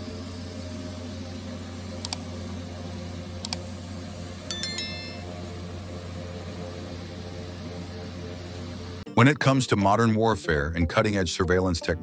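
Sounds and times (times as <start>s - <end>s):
notification bell chime: 4.5s - 5.3s.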